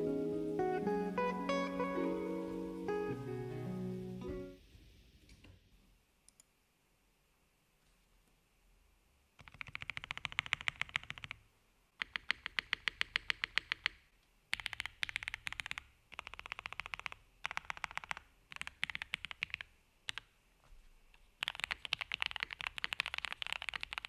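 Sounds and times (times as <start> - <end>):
mechanical keyboard typing: 9.4 - 11.4, 12.0 - 20.3, 21.4 - 24.0.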